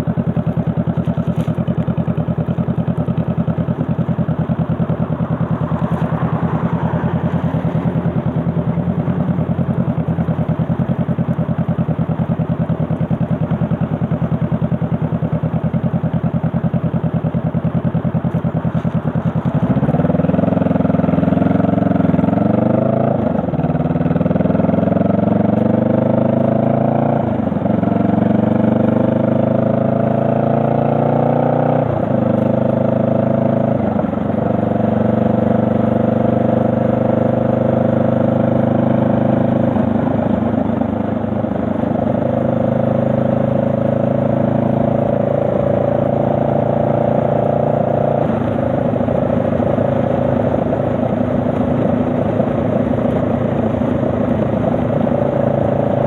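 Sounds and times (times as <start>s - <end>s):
motorcycle engine shifting gears: 0.0s - 56.0s.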